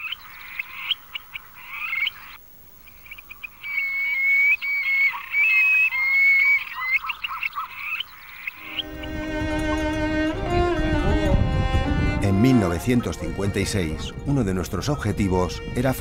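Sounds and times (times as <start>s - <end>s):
dense animal chirping chorus: 0.0s - 8.9s.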